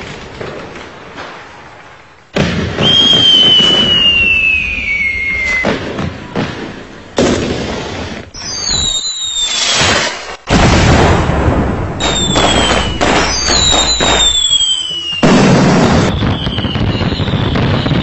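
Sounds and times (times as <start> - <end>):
fireworks bursts: 0.0 - 18.0
firework whistles: 2.7 - 6.0, 7.6 - 10.5, 12.0 - 18.0.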